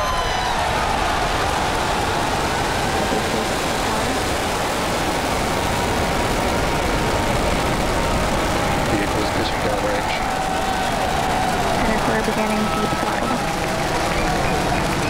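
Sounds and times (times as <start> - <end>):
rocket engines roaring: 0.0 - 15.0.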